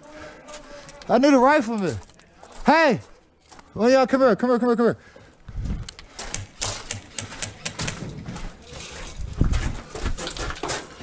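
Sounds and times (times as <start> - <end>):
hurried footsteps on gravel: 5.4 - 11.0.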